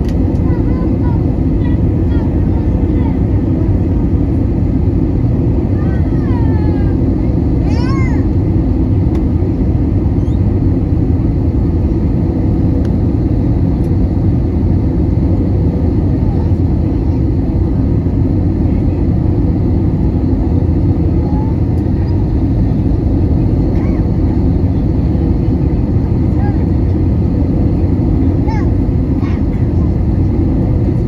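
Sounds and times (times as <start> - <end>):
airplane cabin rumble: 0.0 - 31.0.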